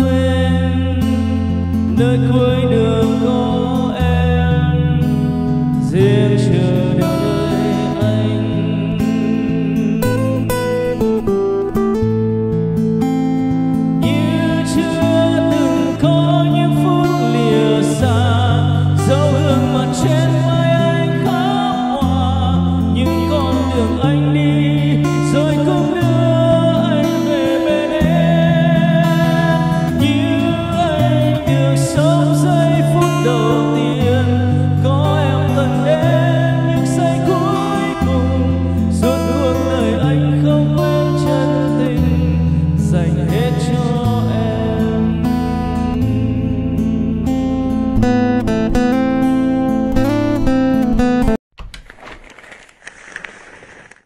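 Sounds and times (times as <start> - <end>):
man singing into a microphone: 0.0 - 12.2, 13.7 - 49.4
karaoke backing track with bass: 0.0 - 51.4.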